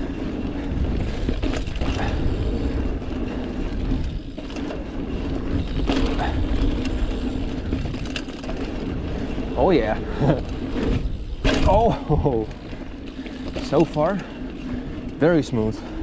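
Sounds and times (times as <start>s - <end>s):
bike frame rattling and clicking: 0.0s - 16.0s
bike tyres rumbling on dirt: 0.0s - 16.0s.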